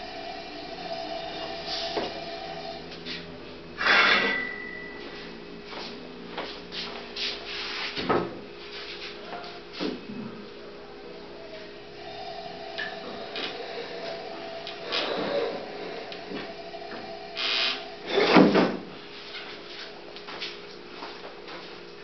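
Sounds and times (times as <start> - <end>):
steady hum: 0.0 - 22.0.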